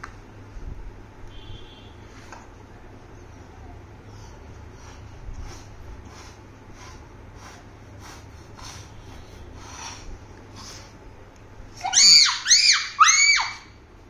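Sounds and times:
child squealing: 11.8 - 13.8.

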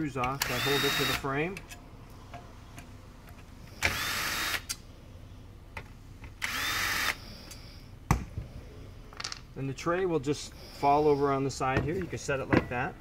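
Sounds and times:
cordless drill whine: 0.4 - 1.3, 3.8 - 4.8, 6.4 - 7.6.

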